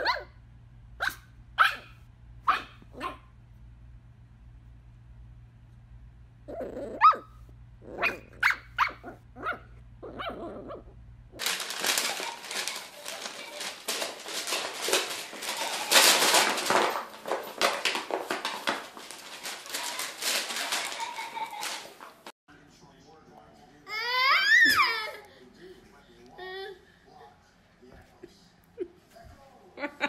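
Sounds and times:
dog barking: 0:00.0 - 0:00.3, 0:01.0 - 0:03.3, 0:07.0 - 0:07.3, 0:07.9 - 0:10.8.

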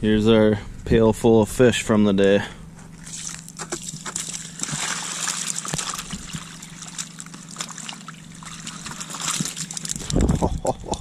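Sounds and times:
water trickling from a bucket: 0:03.0 - 0:11.0
fish slapping on ice: 0:03.1 - 0:10.2.

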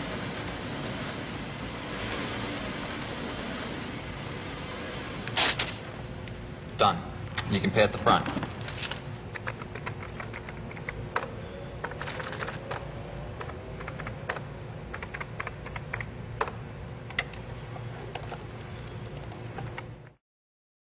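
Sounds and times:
computer keyboard typing: 0:09.3 - 0:16.6, 0:18.2 - 0:19.8.

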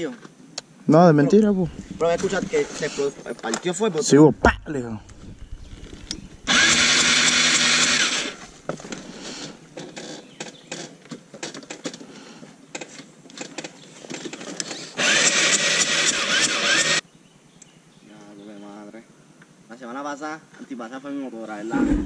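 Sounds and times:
electric starter cranking engine: 0:05.1 - 0:09.0, 0:14.7 - 0:17.0.

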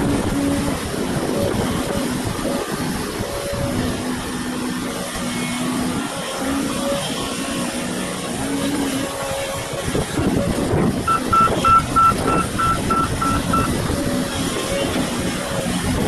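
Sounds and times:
excavator diesel engine drone: 0:00.0 - 0:16.0
warning beeper: 0:11.1 - 0:13.8.

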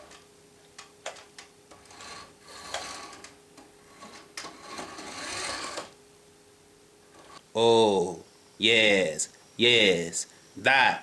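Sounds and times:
clicks and scraping on wood: 0:00.8 - 0:05.9
toy motor whine: 0:01.8 - 0:03.2, 0:03.9 - 0:05.9.

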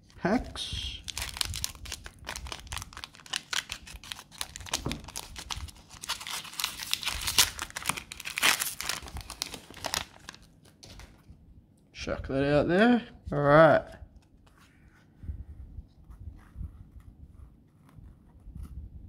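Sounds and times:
wrapper tearing and crinkling: 0:01.0 - 0:11.2.

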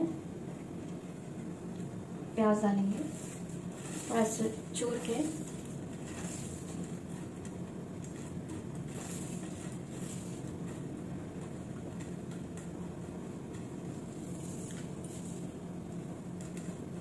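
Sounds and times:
low background hum: 0:00.0 - 0:17.0
crisp rustles of fried onions: 0:02.8 - 0:11.6, 0:13.5 - 0:15.6.

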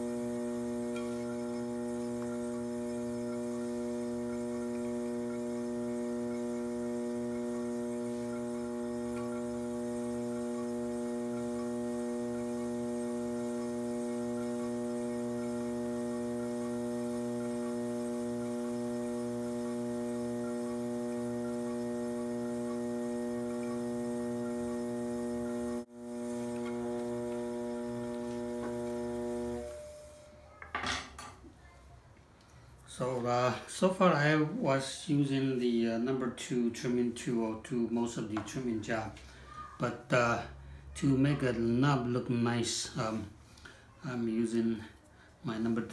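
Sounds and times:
pottery wheel motor humming: 0:00.0 - 0:30.4.

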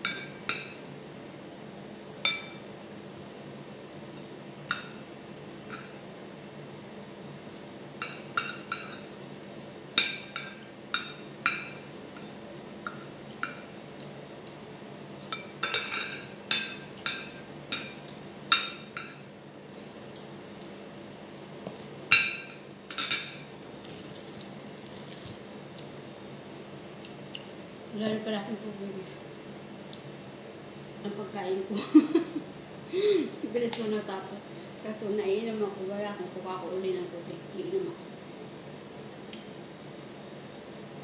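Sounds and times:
cutlery clinking on a plate: 0:05.7 - 0:06.0.

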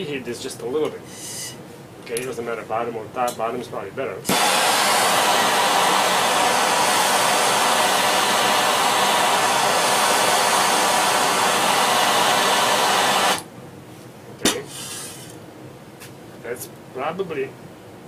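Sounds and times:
propane torch hissing: 0:04.3 - 0:13.5, 0:14.6 - 0:15.4.

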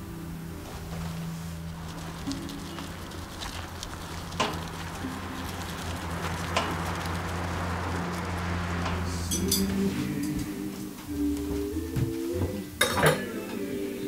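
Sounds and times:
wire cart rattling over gravel: 0:00.0 - 0:10.2
low steady hum: 0:00.0 - 0:14.0.

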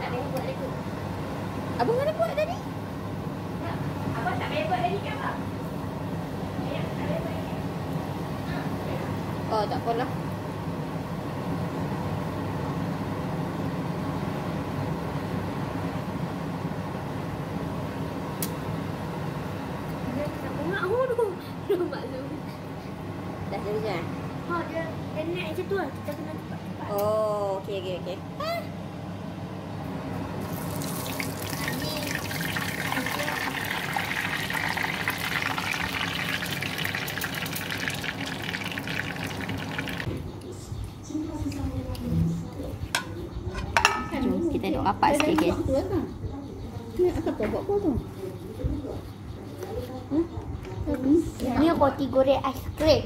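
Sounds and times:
oil hissing and bubbling: 0:30.4 - 0:40.2.

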